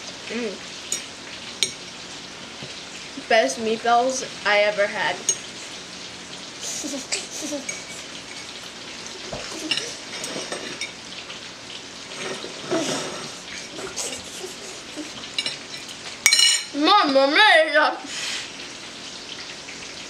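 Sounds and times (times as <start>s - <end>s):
steady hiss: 0.0s - 20.0s
forks clinking and scraping plates: 7.1s - 8.5s, 9.4s - 11.0s, 15.3s - 16.7s.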